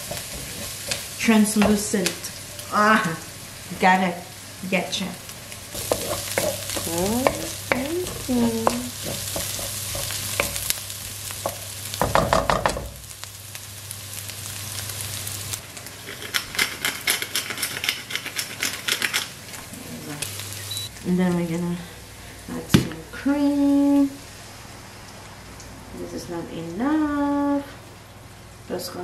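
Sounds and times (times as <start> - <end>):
meat and onions sizzling in a pan: 0.0 - 16.0, 20.2 - 22.6
wooden spatula scraping a pan: 5.8 - 10.7.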